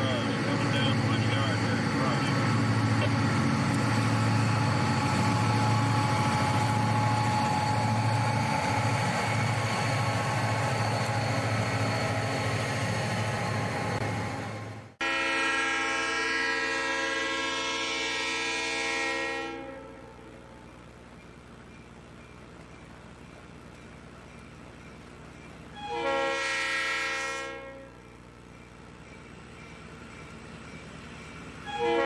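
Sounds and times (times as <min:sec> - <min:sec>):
locomotive horn chord: 0:00.0 - 0:06.9, 0:15.0 - 0:20.6, 0:25.8 - 0:28.1, 0:31.6 - 0:32.0
diesel locomotives rumbling past: 0:00.0 - 0:32.0.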